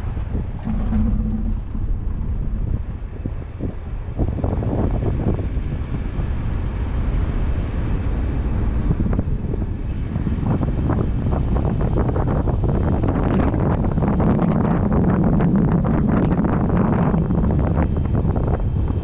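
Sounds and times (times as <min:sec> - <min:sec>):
car driving rumble: 0:00.0 - 0:06.8
wind buffeting microphone: 0:00.0 - 0:19.0.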